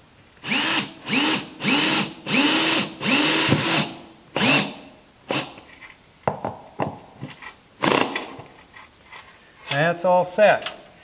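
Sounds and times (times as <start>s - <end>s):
cordless drill driving screws: 0.4s - 5.6s, 7.8s - 8.2s.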